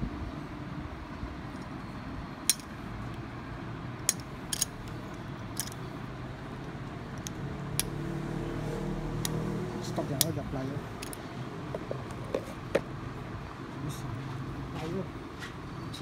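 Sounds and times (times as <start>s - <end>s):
sharp metallic clicks: 4.0s - 5.9s, 6.6s - 8.0s, 9.2s - 11.3s.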